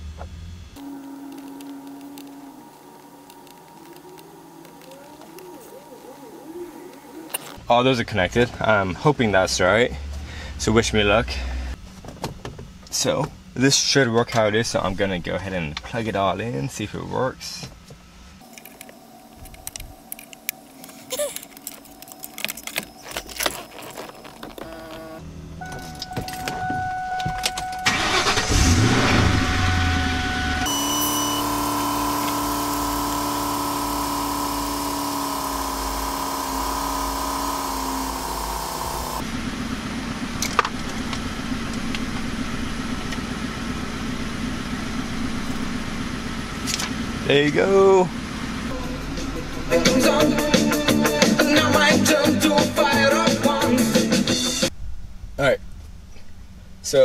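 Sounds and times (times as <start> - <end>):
plastic connectors clicking and rattling: 19.5 - 24.7
car engine idling: 27.6 - 50.5.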